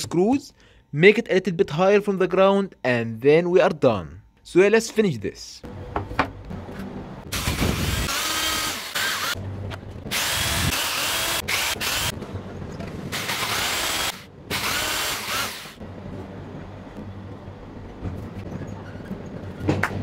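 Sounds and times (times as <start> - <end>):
electric drill boring into chipboard: 7.3 - 9.4, 10.1 - 12.2, 13.1 - 15.8.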